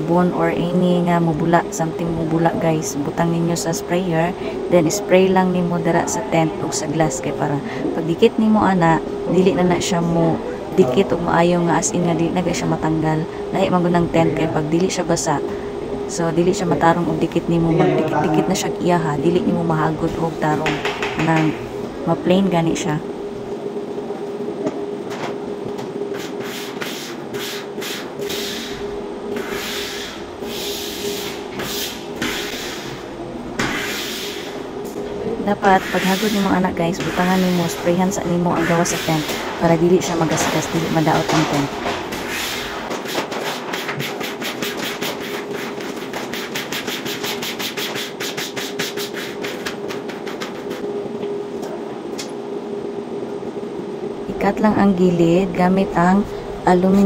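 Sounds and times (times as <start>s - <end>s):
steady hum: 0.0s - 57.0s.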